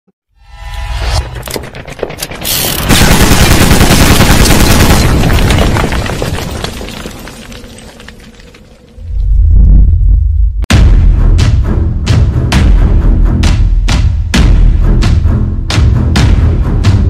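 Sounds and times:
explosion with crackling debris: 2.9s - 10.2s.

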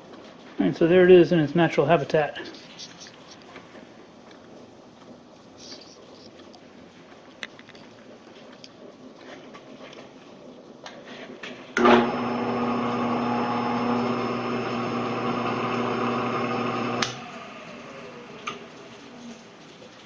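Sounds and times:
electric motor humming: 11.8s - 19.0s
motor coasting down: 11.8s - 19.5s.

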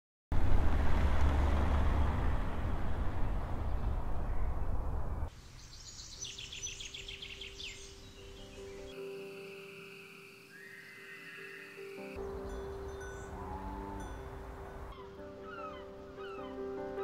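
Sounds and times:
car driving away: 0.3s - 5.3s, 13.1s - 14.9s
birds chirping: 2.9s - 17.0s.

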